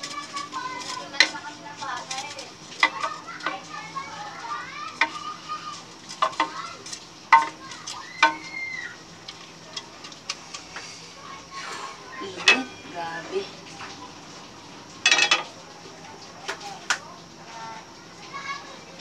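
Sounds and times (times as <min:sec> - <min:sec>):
wooden spoon stirring sauce in pot: 0:00.0 - 0:14.5
spoon knocking against pot: 0:07.3 - 0:07.6, 0:08.2 - 0:08.5.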